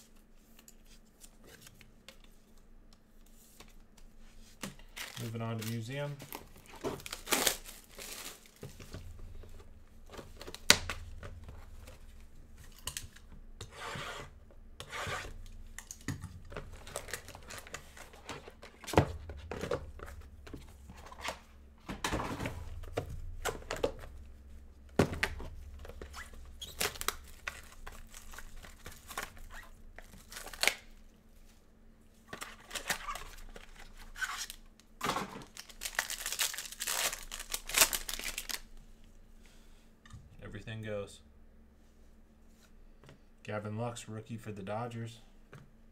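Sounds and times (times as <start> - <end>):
wrapping tearing and crinkling: 4.6 - 8.9, 15.3 - 18.9, 25.8 - 31.0, 32.4 - 34.8, 35.4 - 38.8.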